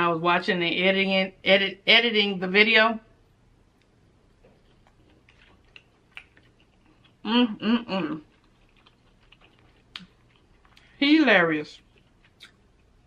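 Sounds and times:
wet chewing mouth sounds: 4.4 - 7.3, 8.0 - 11.0, 11.8 - 13.0.

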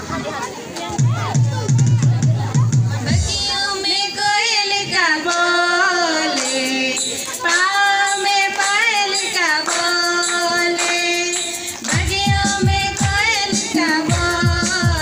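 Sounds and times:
children and women singing: 3.0 - 15.0
hand claps: 5.2 - 15.0.

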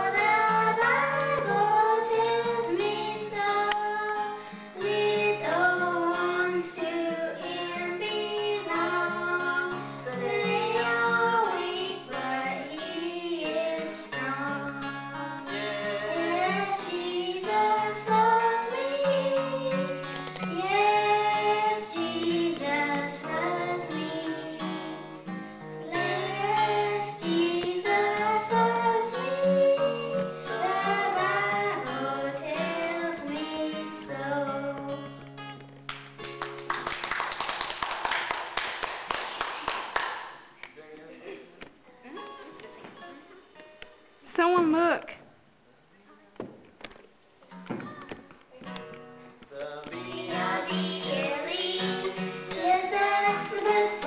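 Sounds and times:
child singing into a microphone: 0.0 - 25.2, 25.8 - 35.2, 49.9 - 54.0
strummed acoustic guitar: 0.0 - 36.8, 47.5 - 54.0
applause: 35.9 - 40.8.

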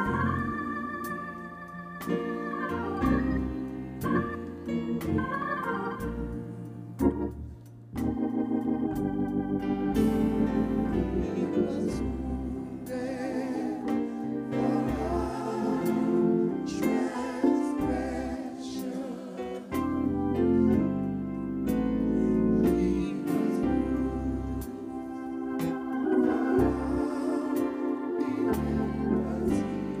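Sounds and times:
organ music: 0.0 - 30.0
person singing: 11.0 - 20.0, 22.6 - 24.9, 26.2 - 30.0.

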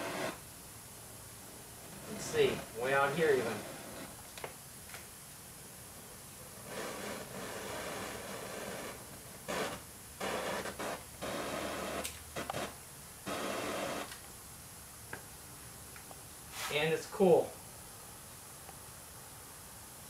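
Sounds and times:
torch flame hissing: 0.0 - 5.0, 5.8 - 14.2.

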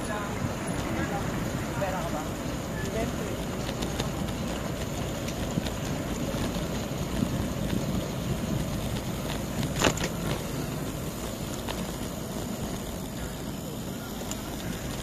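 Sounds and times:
road noise: 0.0 - 15.0
wind rumbling on microphone: 0.0 - 15.0.

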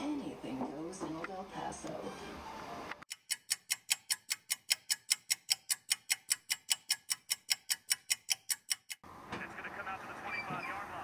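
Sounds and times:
fast clock ticking: 3.1 - 9.0.

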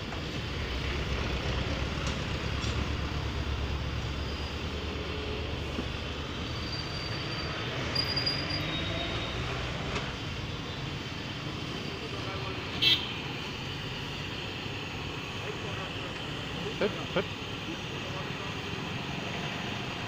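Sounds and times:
road traffic rumble: 0.0 - 20.0
short high-pitched squeals: 6.4 - 9.8.

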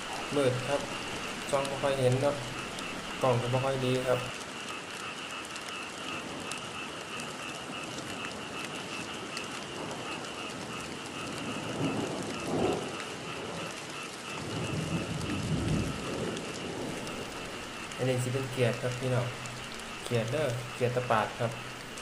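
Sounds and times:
high-pitched night chorus: 0.0 - 4.4, 16.9 - 22.0
steady rain: 0.0 - 22.0.

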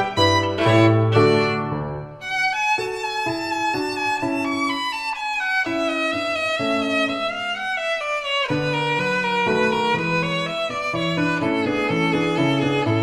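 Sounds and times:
background music with held notes: 0.0 - 6.9.

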